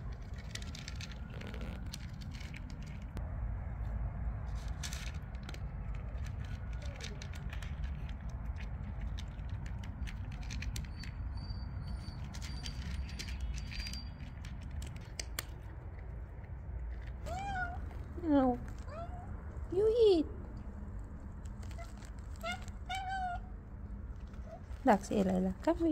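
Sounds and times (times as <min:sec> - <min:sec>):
cat crunching dry kibble: 0:00.0 - 0:03.2, 0:04.4 - 0:19.6, 0:20.4 - 0:25.9.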